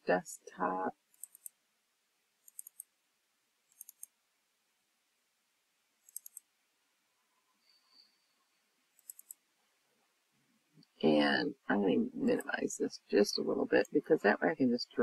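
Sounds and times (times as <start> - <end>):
computer mouse clicking: 1.1 - 1.6, 2.4 - 2.9, 3.7 - 4.1, 6.0 - 6.5, 8.9 - 9.4.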